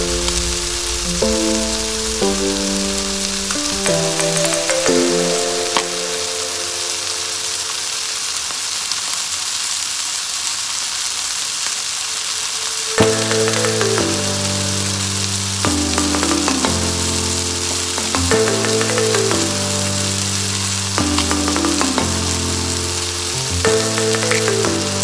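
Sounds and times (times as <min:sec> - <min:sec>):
background music: 0:00.0 - 0:07.9, 0:13.0 - 0:25.0
chicken sizzling in hot oil: 0:00.0 - 0:25.0.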